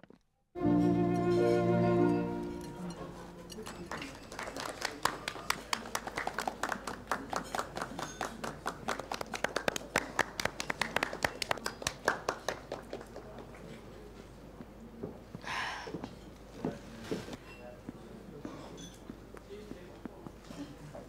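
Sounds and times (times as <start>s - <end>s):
audience applauding: 3.5s - 13.5s.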